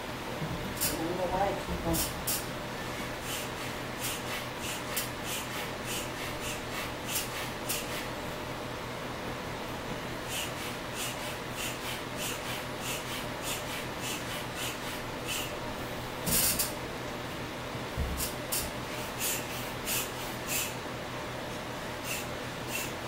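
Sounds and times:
foot air pump puffing: 0:03.2 - 0:08.1, 0:10.3 - 0:15.5, 0:16.3 - 0:16.7, 0:18.1 - 0:20.8, 0:22.0 - 0:23.0.

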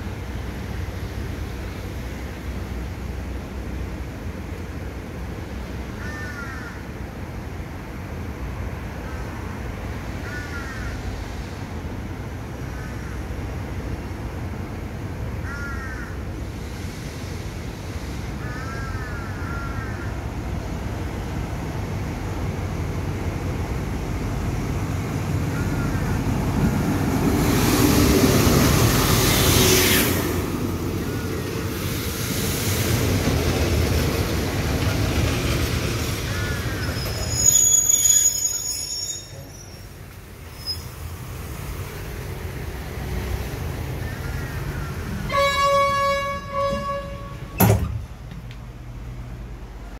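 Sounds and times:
diesel train engine rumble: 0:00.0 - 0:49.9
train wheels rolling: 0:26.0 - 0:43.8, 0:44.6 - 0:48.9
brake squeal: 0:36.3 - 0:41.1.

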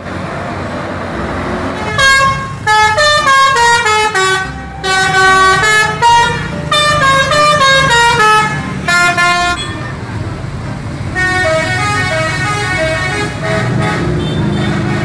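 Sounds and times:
bus engine: 0:00.0 - 0:15.0
traffic noise: 0:00.0 - 0:15.0
musical air horn tune: 0:01.8 - 0:09.8, 0:11.2 - 0:15.0.

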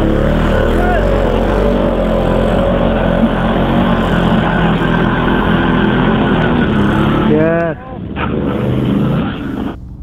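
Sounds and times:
quad bike pulling away: 0:00.0 - 0:09.9
quad bike engine running steadily: 0:00.0 - 0:10.0.

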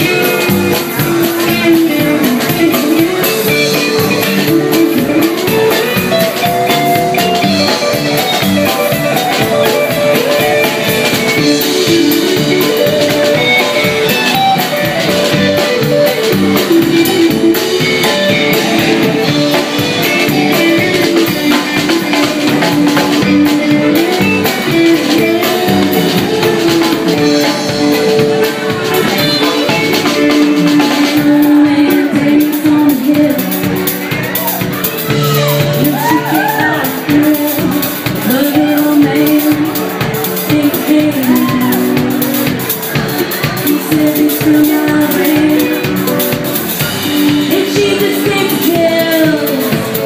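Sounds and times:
woman singing: 0:00.0 - 0:06.5, 0:28.9 - 0:33.8, 0:35.6 - 0:42.3, 0:43.3 - 0:46.2, 0:47.0 - 0:50.0
drums: 0:00.0 - 0:50.0
electric guitar: 0:00.0 - 0:50.0.

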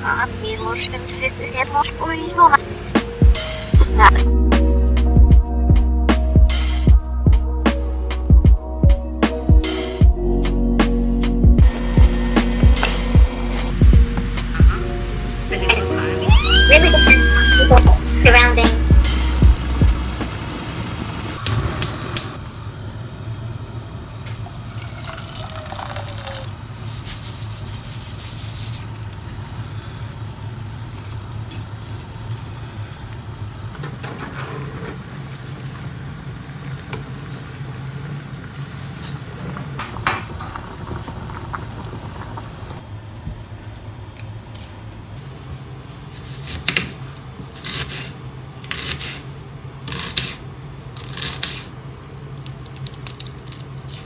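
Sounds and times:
low hum: 0:10.0 - 0:25.2.

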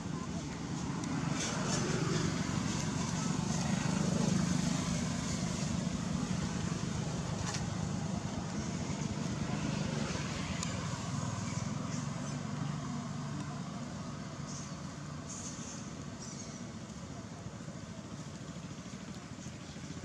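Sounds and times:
traffic rumble: 0:00.0 - 0:20.0.

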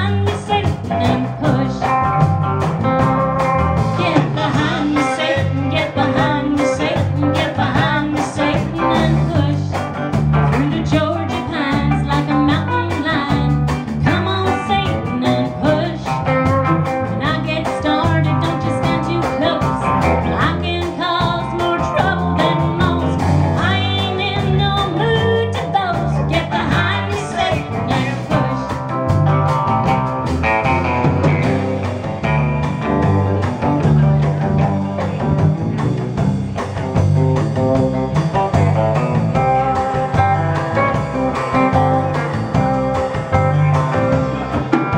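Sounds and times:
woman singing: 0:00.0 - 0:02.1, 0:03.9 - 0:16.3, 0:17.0 - 0:28.9
acoustic guitar: 0:00.0 - 0:44.9
bass guitar: 0:00.0 - 0:44.9
drum kit: 0:00.0 - 0:44.9
electric guitar: 0:00.0 - 0:44.9.

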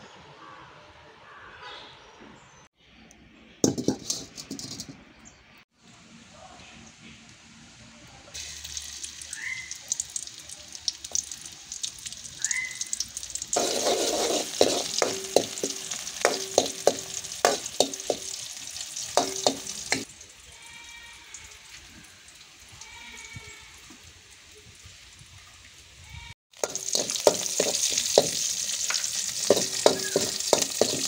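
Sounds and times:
onions sizzling in oil: 0:08.4 - 0:31.0
metal spoon clinking on pan: 0:13.0 - 0:18.4, 0:19.1 - 0:20.1, 0:26.6 - 0:31.0.

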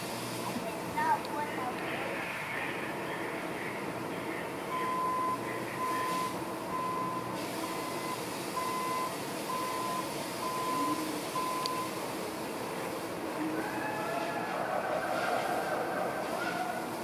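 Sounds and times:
constant background hum: 0:00.2 - 0:17.0
reversing alarm beeping: 0:04.7 - 0:12.0.

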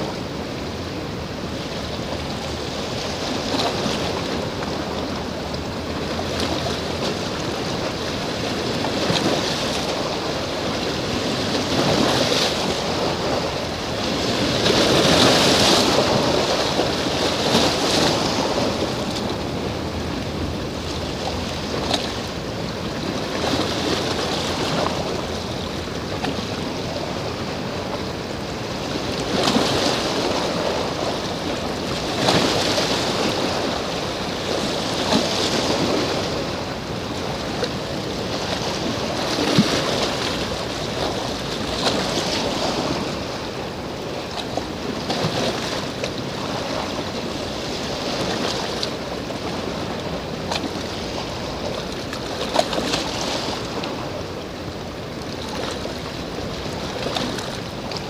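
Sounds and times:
waves washing against rocky shore: 0:00.0 - 0:58.0.

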